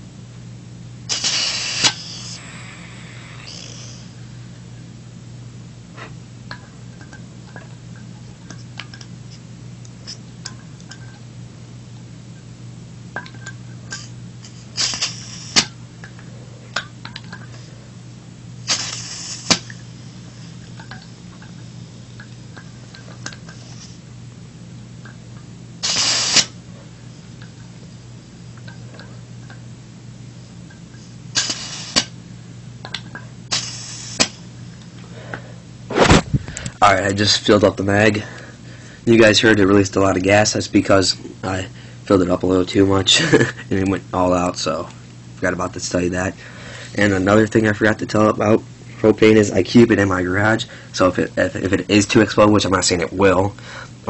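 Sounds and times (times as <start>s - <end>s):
steady low hum: 0.0s - 54.0s
gas hissing: 1.1s - 4.5s, 13.9s - 15.8s, 18.6s - 24.1s, 25.8s - 26.6s, 31.3s - 32.2s, 33.4s - 34.5s.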